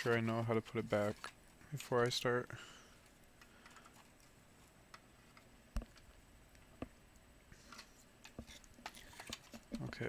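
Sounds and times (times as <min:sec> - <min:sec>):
plastic parts handling noise: 0:03.0 - 0:06.2, 0:07.6 - 0:10.0.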